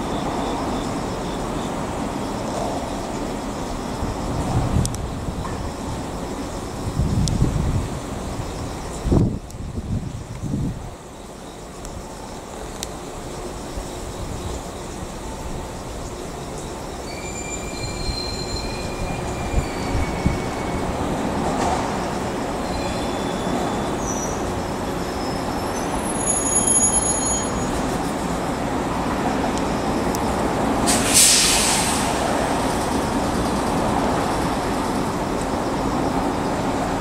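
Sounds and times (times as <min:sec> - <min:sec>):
train wheel rumble: 0:00.0 - 0:37.0
high flange squeals: 0:17.0 - 0:21.2, 0:22.6 - 0:27.9
brief hiss: 0:30.8 - 0:32.3.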